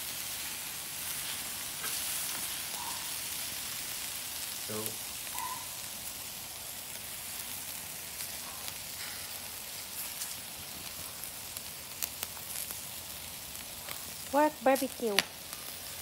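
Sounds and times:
meat sizzling on a grill: 0:00.0 - 0:16.0
fat pops and crackles: 0:13.6 - 0:16.0.

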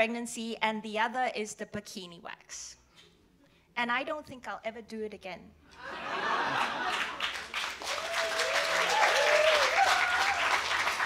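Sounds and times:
audience applauding: 0:06.5 - 0:11.0.

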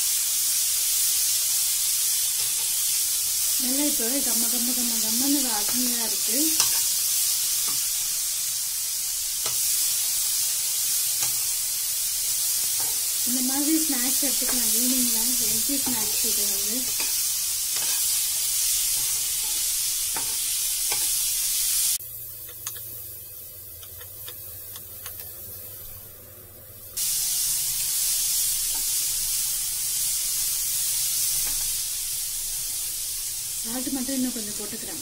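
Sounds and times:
corn sizzling in oil: 0:00.0 - 0:35.0
steel spoon scraping a pan: 0:06.5 - 0:07.9, 0:14.0 - 0:21.2.

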